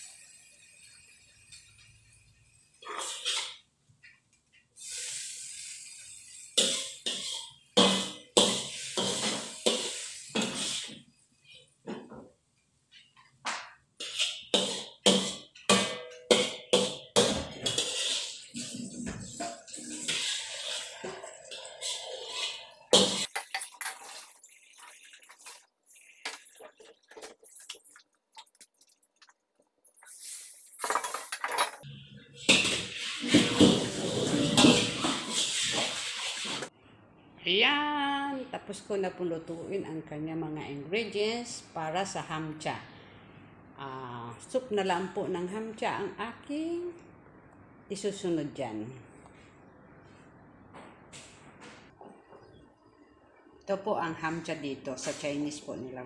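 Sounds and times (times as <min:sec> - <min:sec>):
metal spatula scraping wok: 0:02.8 - 0:03.6, 0:04.8 - 0:11.7, 0:14.0 - 0:29.3, 0:30.0 - 0:36.7
vegetables sizzling: 0:04.8 - 0:11.1, 0:14.0 - 0:29.3, 0:32.4 - 0:36.7.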